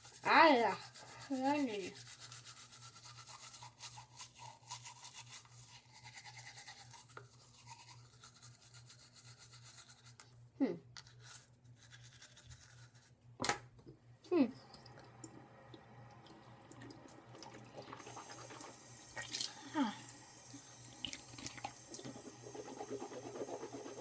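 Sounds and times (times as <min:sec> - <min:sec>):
toothbrush scrubbing teeth: 0:00.0 - 0:10.3, 0:11.0 - 0:13.2, 0:17.4 - 0:24.0.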